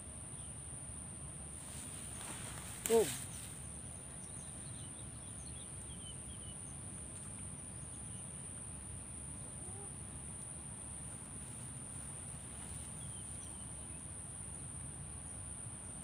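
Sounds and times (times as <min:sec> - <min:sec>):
faint bird chirps: 0:09.4 - 0:10.2.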